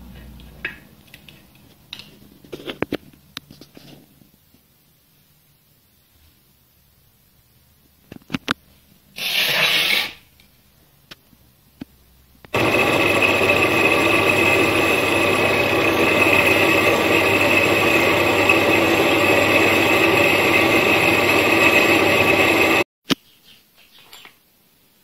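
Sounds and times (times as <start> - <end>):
metal lathe whining: 12.6 - 22.9.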